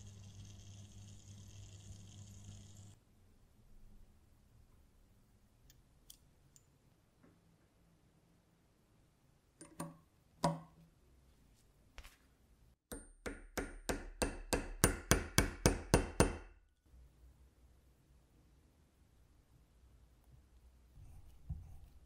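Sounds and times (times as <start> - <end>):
small hammer tapping metal: 12.9 - 16.5.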